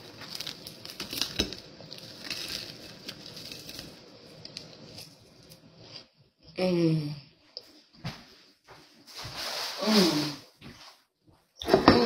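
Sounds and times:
wrapper rustling: 0.0s - 5.7s, 9.1s - 10.5s.

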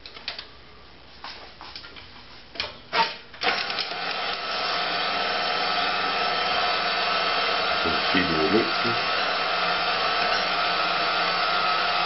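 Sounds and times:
meat grinder motor whining: 3.4s - 12.0s.

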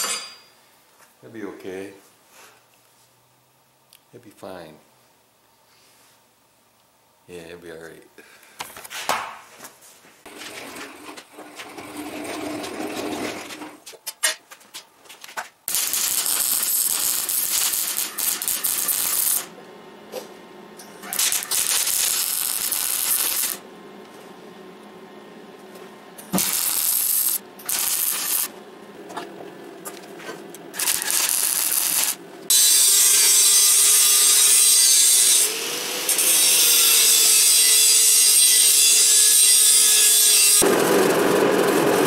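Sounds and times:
arc welder crackling: 15.6s - 42.0s.

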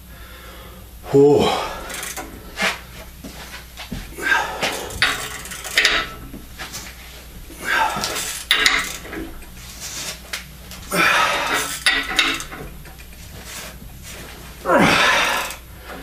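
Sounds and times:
loud exhale: 4.2s - 4.9s, 14.7s - 15.6s
steel tools clinking on metal: 4.8s - 6.3s, 7.8s - 9.4s, 11.4s - 13.1s.

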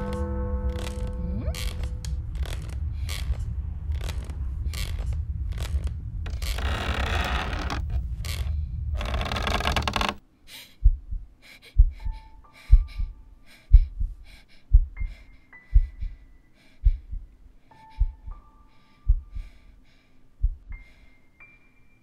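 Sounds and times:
loud creaking grating noise: 0.0s - 10.2s
slow heartbeat thumping: 0.0s - 10.2s, 10.8s - 19.7s, 20.4s - 21.0s.

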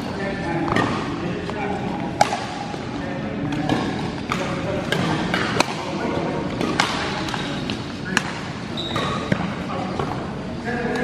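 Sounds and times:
murmur of voices echoing: 0.0s - 11.0s
racket striking shuttlecock: 2.2s - 2.7s.

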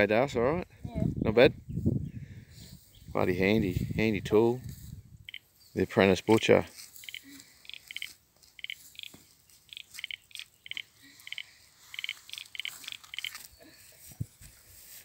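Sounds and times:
bird chirping: 7.0s - 14.1s.

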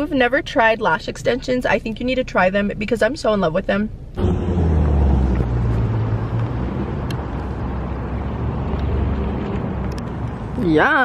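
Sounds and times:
car engine running: 0.6s - 10.6s.

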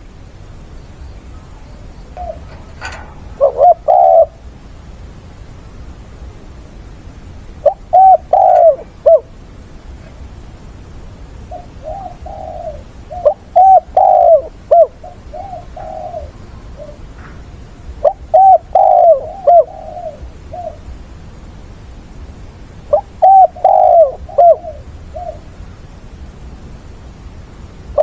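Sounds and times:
dove cooing: 1.4s - 4.5s, 7.6s - 9.3s, 11.5s - 17.2s, 18.0s - 20.9s, 22.9s - 25.6s.

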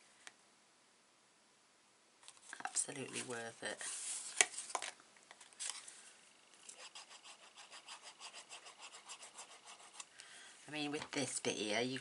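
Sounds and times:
rhythmic rubbing on card stock: 6.7s - 10.0s.

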